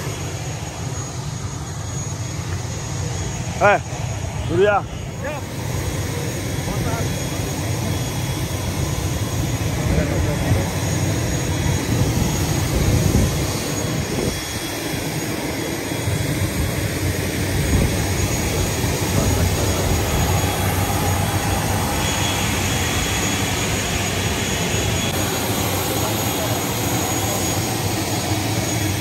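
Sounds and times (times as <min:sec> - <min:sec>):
airliner engines rumbling: 0:00.0 - 0:29.0.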